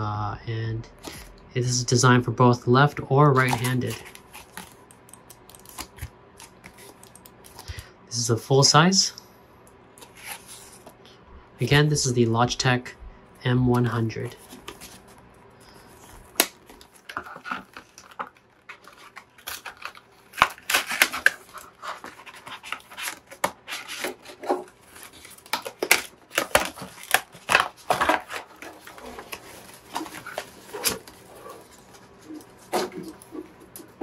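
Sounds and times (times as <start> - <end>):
plastic packaging crackling: 3.3 - 7.7, 14.3 - 34.0.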